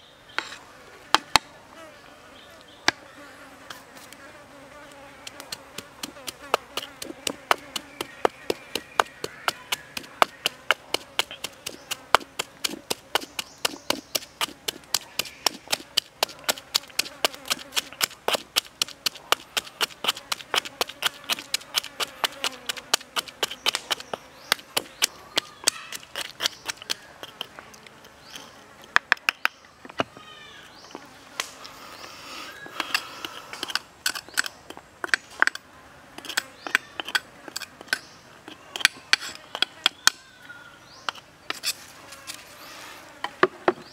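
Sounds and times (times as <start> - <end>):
pestle pounding in stone mortar: 5.2 - 27.5.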